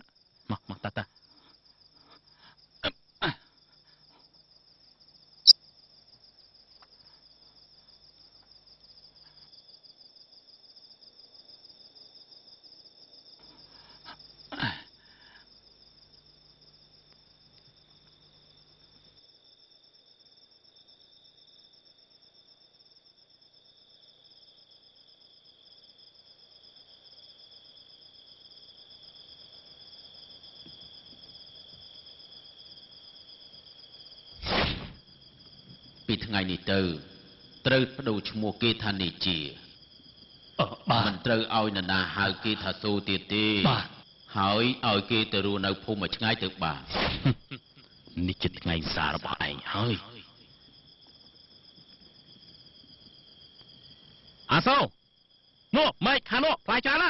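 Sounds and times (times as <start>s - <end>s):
crickets trilling: 0.0s - 57.0s
brief thud: 34.4s - 35.0s, 46.9s - 47.4s.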